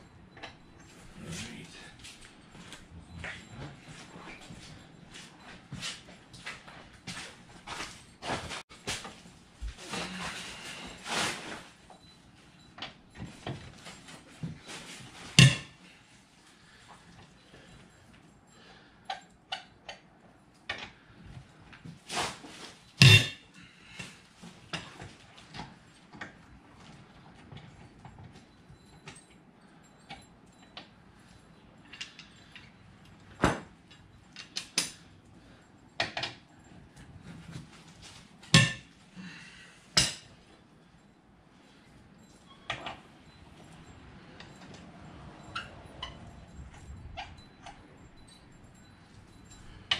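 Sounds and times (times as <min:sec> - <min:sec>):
hand tools clinking on metal: 0:00.0 - 0:21.0, 0:27.4 - 0:49.9
hand tools knocking and clinking: 0:12.8 - 0:15.8, 0:23.0 - 0:23.4, 0:38.4 - 0:39.0
loud metallic clank: 0:23.0 - 0:23.4, 0:38.6 - 0:38.8.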